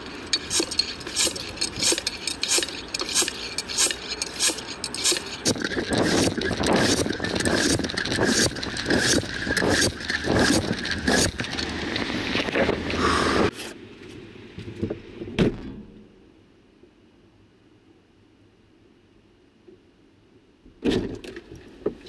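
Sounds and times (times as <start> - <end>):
rough street noise: 0.0 - 16.1.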